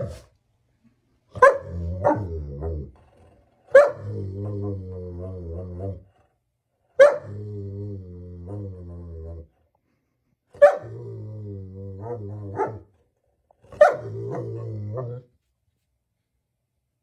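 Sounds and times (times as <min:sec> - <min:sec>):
dog barking: 0:01.3 - 0:02.3, 0:03.7 - 0:04.1, 0:07.0 - 0:07.4, 0:10.6 - 0:11.0, 0:12.0 - 0:12.9, 0:13.7 - 0:14.4
dog growling: 0:01.6 - 0:06.4, 0:07.2 - 0:09.6, 0:10.8 - 0:13.0, 0:13.6 - 0:15.3.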